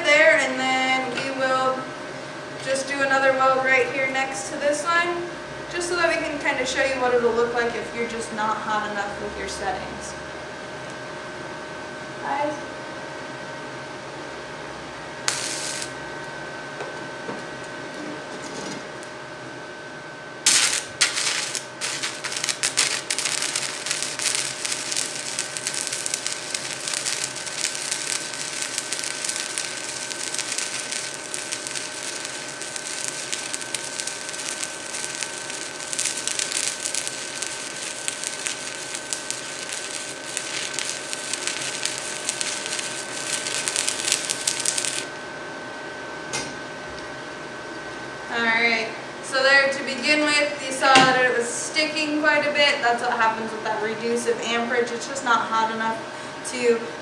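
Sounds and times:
faint whine: 14.7s - 19.1s, 20.4s - 53.6s
welding arc crackling: 15.2s - 16.3s, 20.4s - 45.2s
welding rod scratch: 15.3s - 16.0s, 20.5s - 45.1s.

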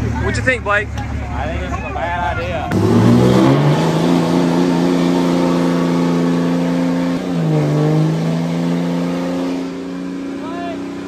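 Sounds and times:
diesel engine at high revs: 2.2s - 11.0s.

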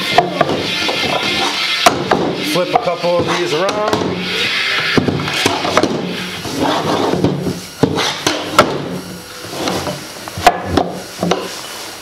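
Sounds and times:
tubes rubbing and scraping: 0.0s - 12.0s.

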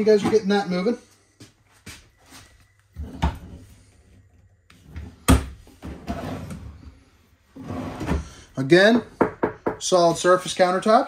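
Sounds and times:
wooden drawer scraping: 4.8s - 8.6s.

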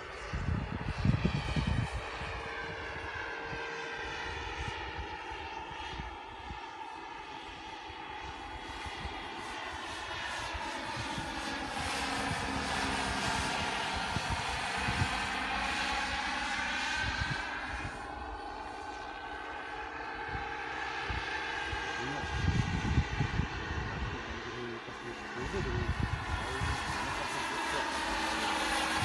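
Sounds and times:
model helicopter rotor whining: 0.0s - 29.0s.

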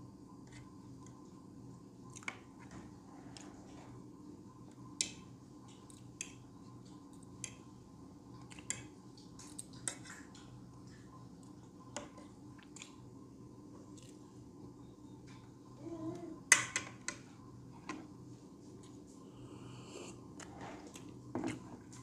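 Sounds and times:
faint steady hum: 0.0s - 22.0s
soft chewing: 18.5s - 22.0s.

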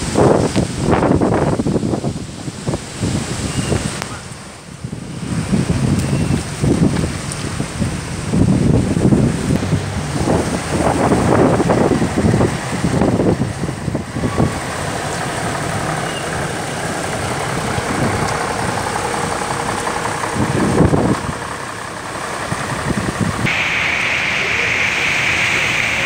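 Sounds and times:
cars driving through water: 0.0s - 26.0s
steady hiss: 23.4s - 26.0s.

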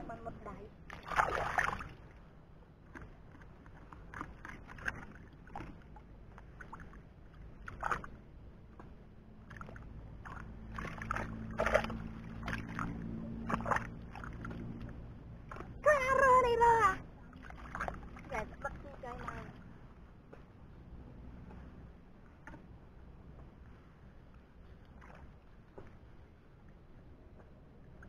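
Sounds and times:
hands sloshing muddy water: 0.9s - 2.1s, 2.9s - 8.2s, 9.3s - 15.9s, 17.2s - 19.7s.

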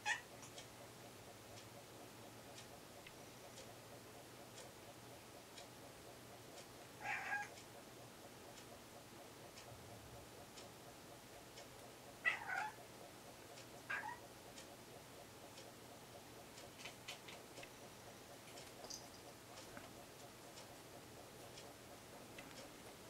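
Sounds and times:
cat meowing: 7.0s - 7.5s, 12.2s - 12.8s, 13.9s - 14.2s.

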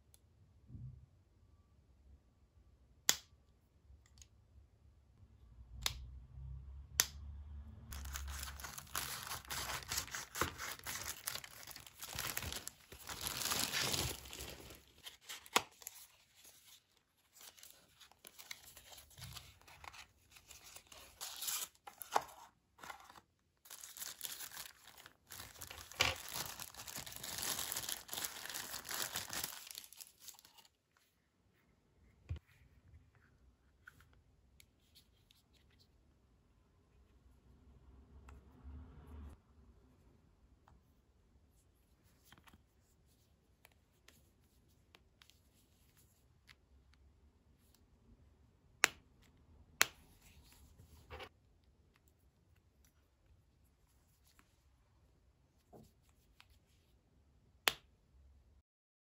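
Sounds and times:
cardboard packaging tearing: 7.9s - 16.0s, 22.8s - 30.6s
packing rustling and crinkling: 7.9s - 30.7s.

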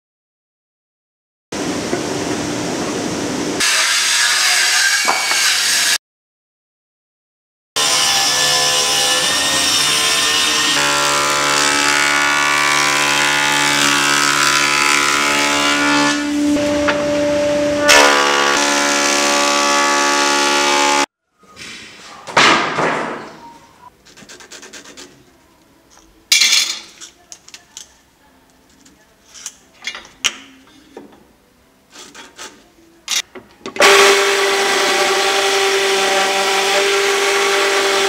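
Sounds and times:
thickness planer whining: 7.8s - 21.1s, 33.8s - 38.0s
pencil rubbing on board: 24.0s - 25.2s.

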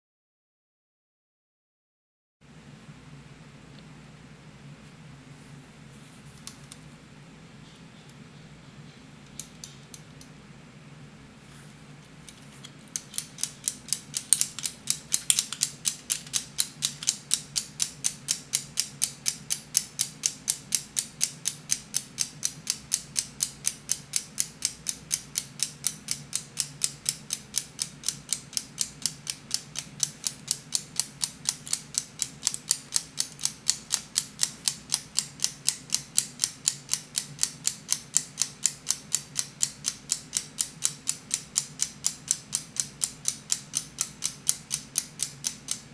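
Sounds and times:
clock mechanism ticking: 12.9s - 45.9s.

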